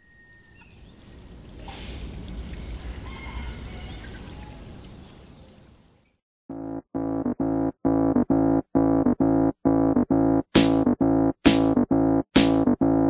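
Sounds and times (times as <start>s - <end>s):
rushing water-like noise: 1.1s - 4.6s.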